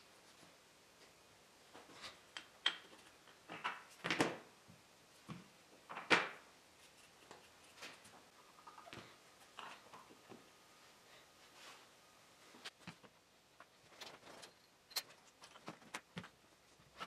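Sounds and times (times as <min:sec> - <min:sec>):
wooden blocks knocking and clacking: 0:02.3 - 0:04.5, 0:05.3 - 0:06.5.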